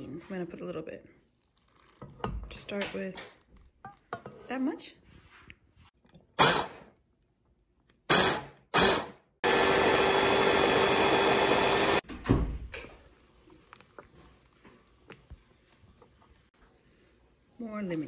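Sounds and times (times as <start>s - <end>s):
food processor motor: 8.1s - 12.0s.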